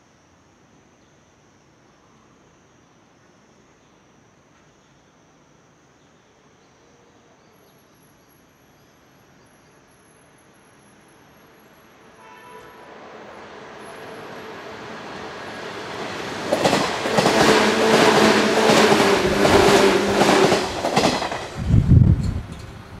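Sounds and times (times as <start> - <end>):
train hum: 10.7 - 23.0
train rumble: 12.2 - 23.0
wheels clacking over rail joints: 13.8 - 21.6.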